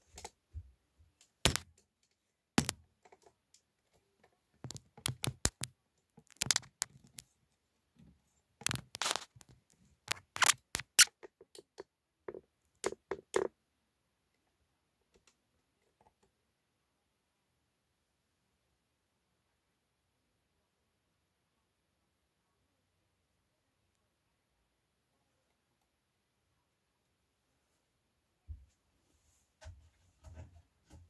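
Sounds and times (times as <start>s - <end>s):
plastic clicks and knocks: 4.6s - 7.3s, 8.6s - 13.5s.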